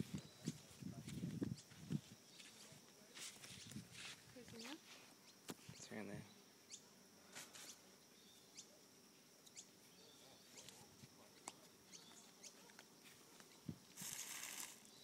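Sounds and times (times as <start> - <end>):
faint high bird chirps: 4.5 - 6.9, 7.5 - 8.8, 9.4 - 10.8, 11.8 - 12.8.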